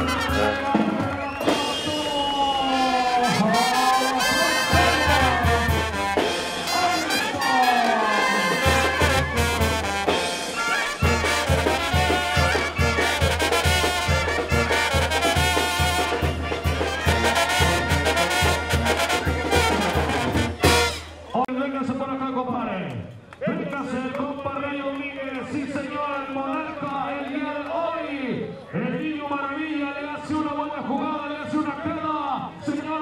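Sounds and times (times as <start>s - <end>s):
brass band playing: 0.0s - 21.4s.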